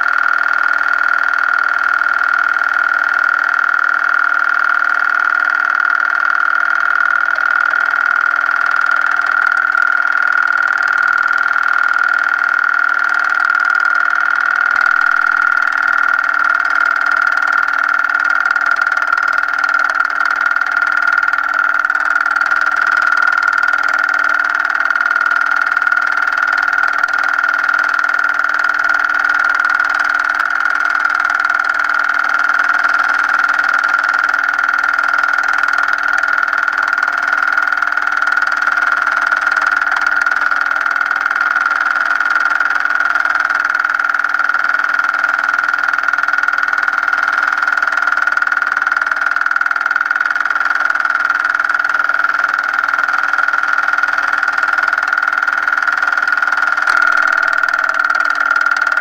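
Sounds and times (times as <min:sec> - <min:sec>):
mechanical whir with high whine: 0:00.0 - 0:59.0.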